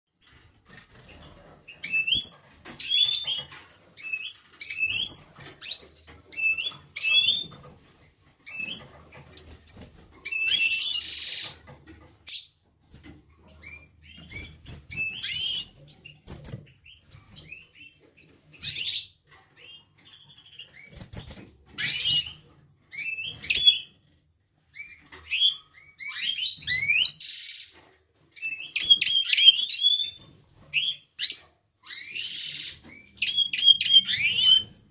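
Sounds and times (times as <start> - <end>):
goldfinch twittering song: 28.4 - 34.9.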